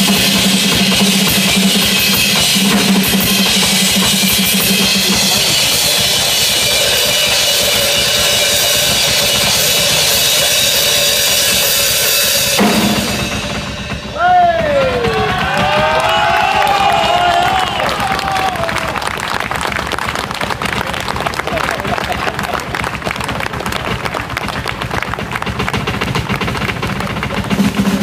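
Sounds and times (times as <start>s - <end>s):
cymbals ringing: 0.0s - 16.0s
drum kit solo: 0.0s - 18.8s, 25.5s - 28.0s.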